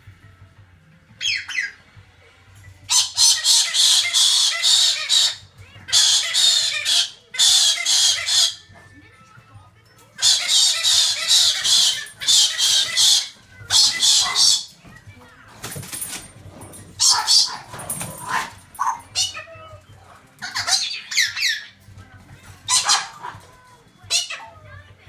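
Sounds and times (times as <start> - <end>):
cockatoo screeching: 2.9 - 8.7, 10.2 - 14.8, 17.0 - 19.8, 20.4 - 21.8, 22.7 - 23.5, 24.1 - 24.6.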